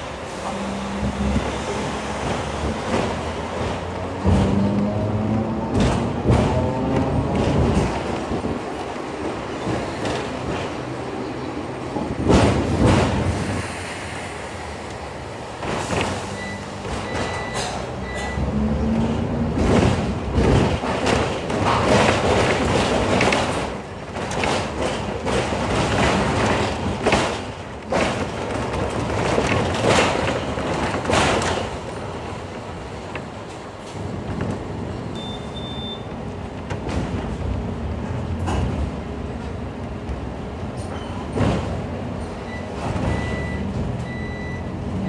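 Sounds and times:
wheels clattering over rail joints: 0.0s - 13.6s, 14.9s - 35.2s
tram running on tracks: 0.0s - 45.0s.

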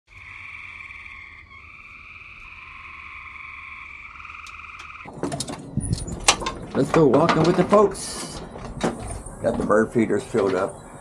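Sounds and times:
frogs trilling in chorus: 0.1s - 5.1s.

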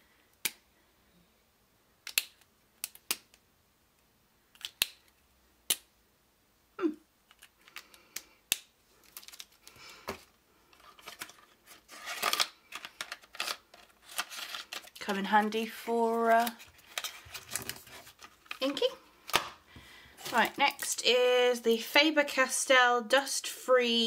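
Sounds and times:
plastic pen clicks: 2.0s - 3.4s, 4.5s - 5.9s
packaging rustling and crinkling: 8.9s - 19.4s, 20.2s - 20.8s.

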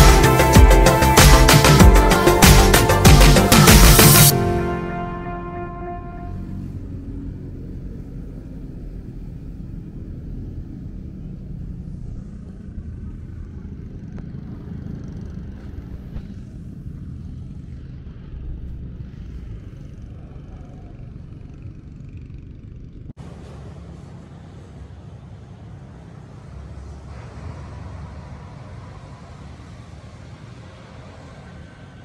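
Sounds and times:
background music: 0.0s - 6.7s
street ambience rumble: 0.0s - 32.0s.

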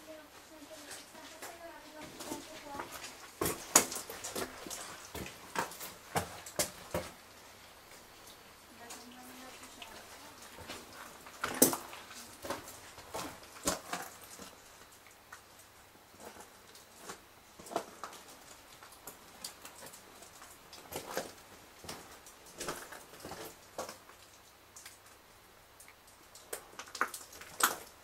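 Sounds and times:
faint footsteps scuffing and clicking: 0.5s - 7.2s.

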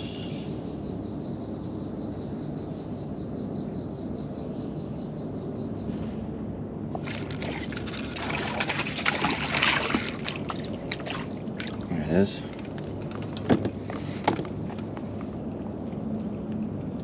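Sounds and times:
fish splashing in water: 6.9s - 14.8s.

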